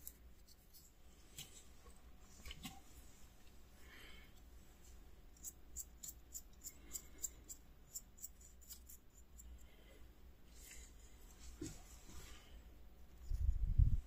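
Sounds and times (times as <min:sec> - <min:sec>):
low room hum: 0:00.0 - 0:14.0
paintbrush ticking and scratching: 0:05.4 - 0:09.6.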